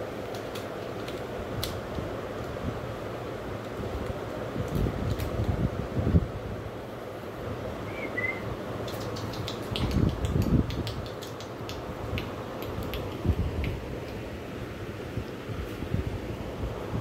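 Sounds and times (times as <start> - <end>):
kitten chirp: 7.9 - 8.5.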